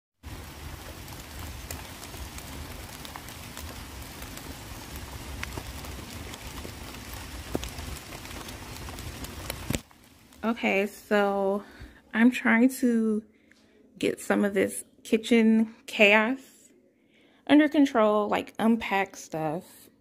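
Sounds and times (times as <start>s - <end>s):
low outdoor rumble: 0.2s - 12.0s.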